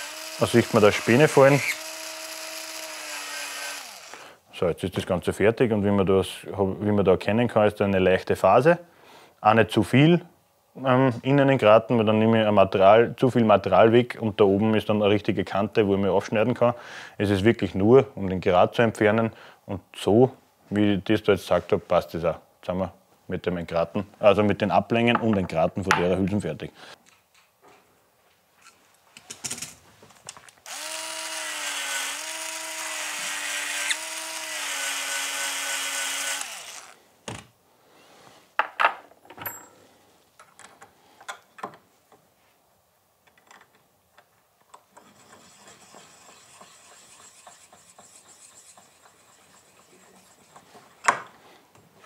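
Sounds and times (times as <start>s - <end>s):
electric deburring tool running: 0.0s - 4.2s, 30.7s - 37.0s.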